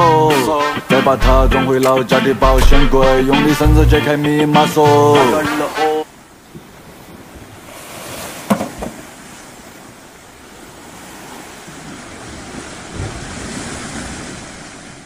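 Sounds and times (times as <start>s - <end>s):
sea waves washing ashore: 0.0s - 15.0s
sharp knock: 2.5s - 3.6s.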